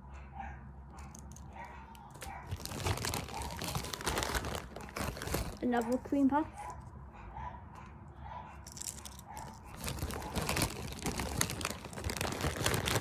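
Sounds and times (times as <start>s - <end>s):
plastic packaging crinkling: 1.1s - 6.3s, 8.7s - 13.0s.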